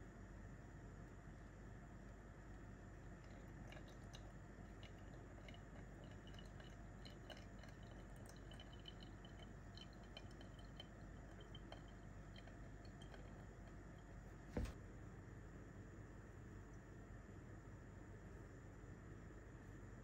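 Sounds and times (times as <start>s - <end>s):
bubbles popping in coffee grounds: 3.0s - 14.8s
water pouring in thin stream: 3.2s - 13.9s.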